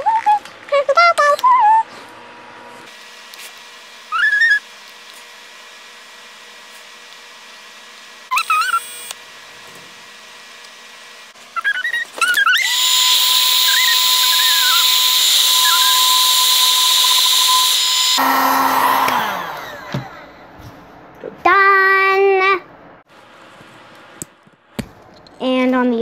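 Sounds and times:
heat gun fan blowing: 0:01.9 - 0:20.5
motor spinning down: 0:02.4 - 0:20.4
heat gun switch: 0:08.3 - 0:09.2, 0:12.0 - 0:20.1.

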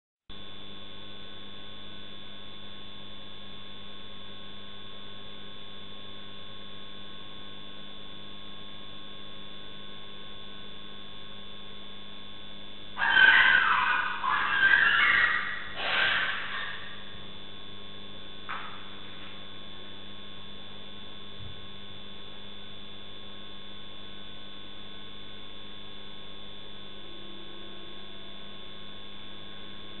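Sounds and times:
electrical hum with high whine: 0:00.3 - 0:30.0
loud animal cry: 0:13.0 - 0:17.2.

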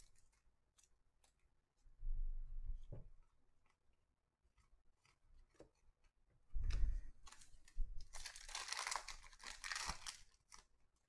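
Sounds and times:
foil wrapper crinkling and tearing: 0:07.2 - 0:10.8.

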